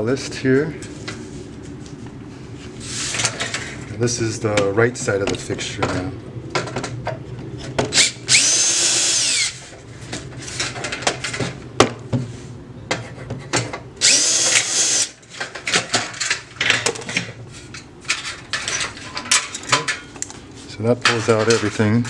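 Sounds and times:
cordless drill motor whine: 0:08.0 - 0:09.6, 0:14.0 - 0:15.2.

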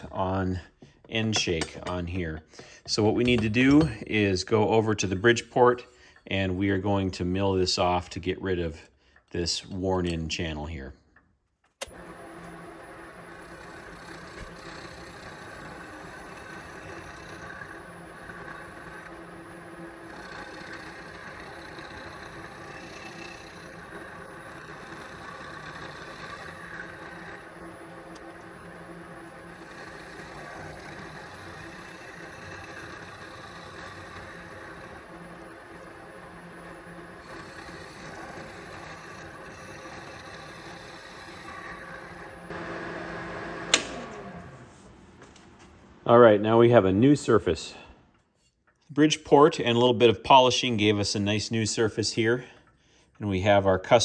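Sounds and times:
milling machine spindle hum: 0:11.8 - 0:45.0.

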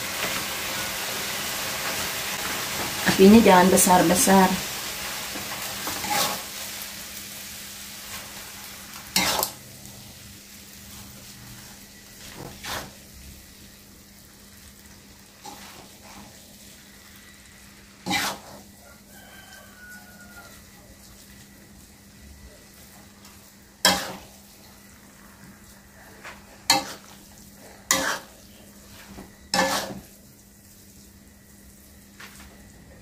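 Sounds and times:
noodles sizzling in a wok: 0:00.0 - 0:33.0
metal spatula scraping a wok: 0:05.8 - 0:06.5, 0:09.1 - 0:09.6, 0:10.9 - 0:13.0, 0:15.4 - 0:16.4, 0:18.0 - 0:18.7, 0:23.8 - 0:24.8, 0:26.3 - 0:30.2.

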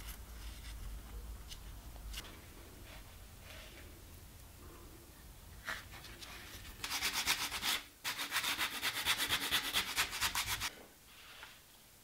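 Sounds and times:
sandpaper rubbing on wood: 0:06.8 - 0:10.7.

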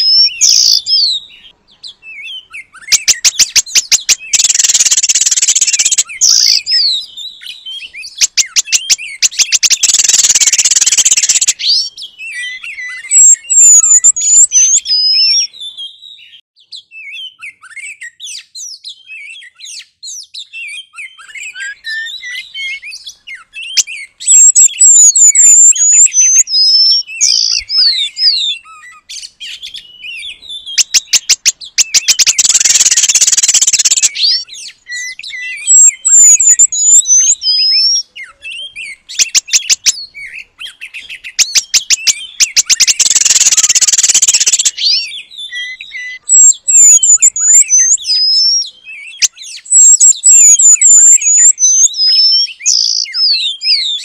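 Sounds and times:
birds chirping and whistling: 0:00.0 - 0:54.0
harsh rattling bird chatter: 0:02.9 - 0:07.0, 0:08.1 - 0:11.8, 0:30.7 - 0:38.0, 0:41.0 - 0:45.2.

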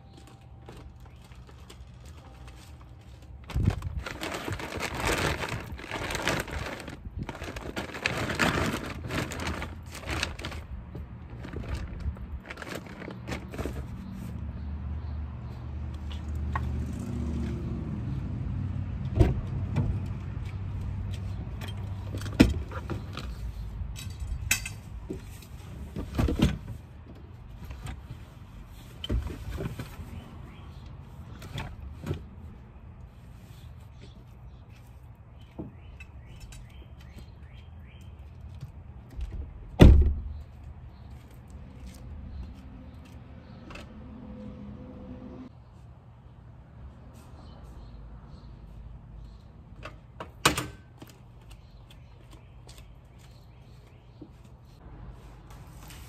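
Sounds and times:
bags rustling and knocking: 0:00.2 - 0:10.7.

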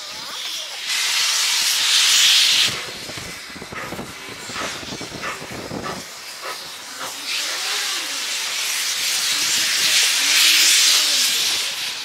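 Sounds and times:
steam locomotive hissing steam: 0:00.0 - 0:12.0.

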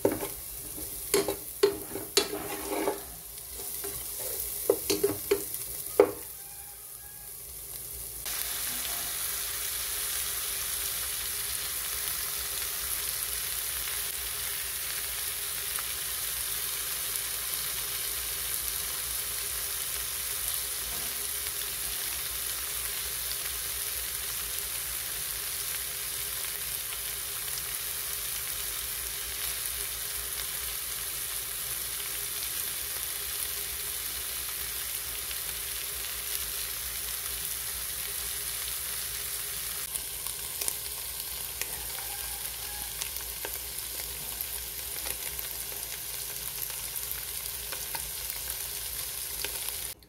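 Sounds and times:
fish sizzling in oil: 0:00.0 - 0:50.0
oil popping and crackling: 0:39.9 - 0:50.0.

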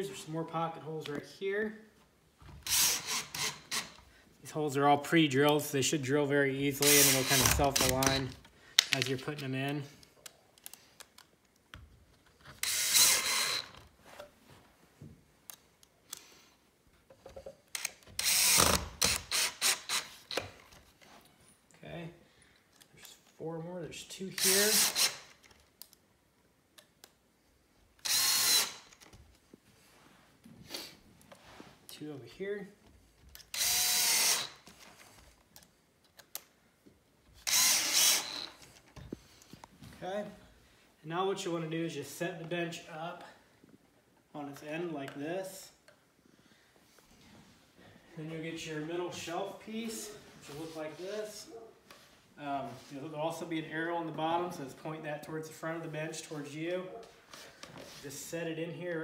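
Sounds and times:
cordless drill driving screws into wood: 0:02.6 - 0:04.0, 0:06.8 - 0:08.4, 0:12.5 - 0:13.8, 0:17.7 - 0:20.6, 0:24.3 - 0:25.4, 0:28.0 - 0:29.1, 0:33.3 - 0:34.8, 0:37.4 - 0:38.8.

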